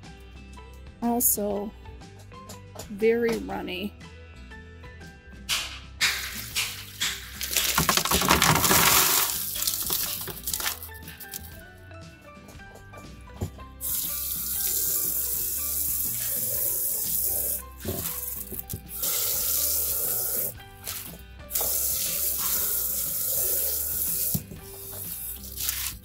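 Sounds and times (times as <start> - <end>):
hose nozzle spraying water: 6.0 - 8.0, 8.7 - 11.4, 13.8 - 26.0.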